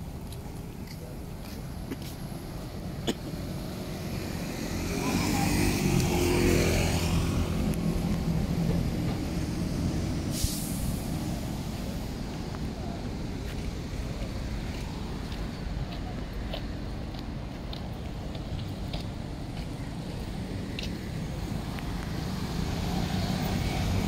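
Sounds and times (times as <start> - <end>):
road traffic rumble: 0.0 - 24.0
large engine passing: 3.5 - 11.8
short high hiss: 10.3 - 11.3.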